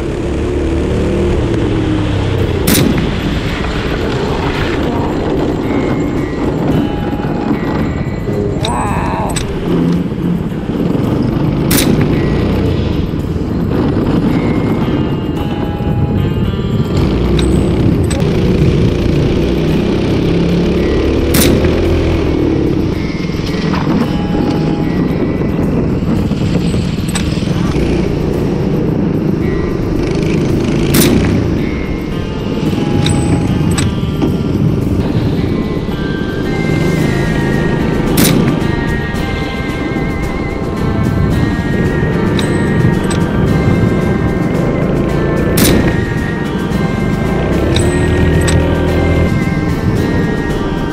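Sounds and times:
kart engine running at speed: 0.0 - 50.9
steady low rumble: 0.0 - 50.9
loud rifle shot: 2.6 - 3.2, 21.3 - 22.0, 38.2 - 38.6.

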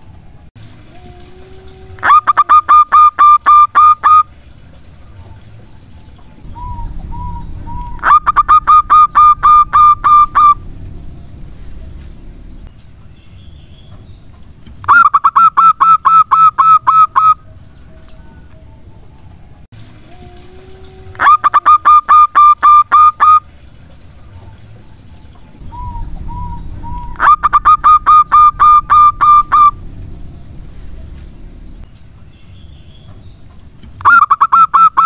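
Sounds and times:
dove cooing: 6.4 - 11.2, 25.6 - 31.8.

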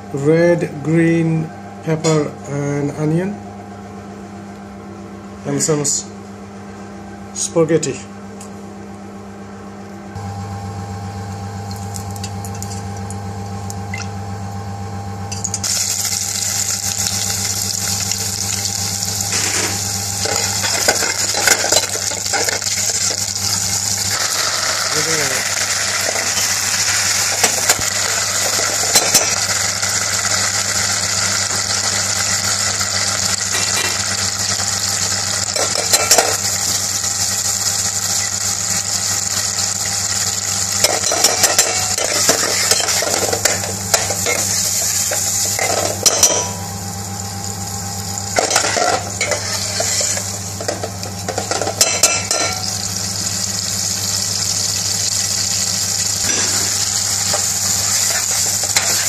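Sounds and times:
food sizzling in oil: 15.5 - 59.0
metal spoon scraping pan: 48.4 - 50.2.

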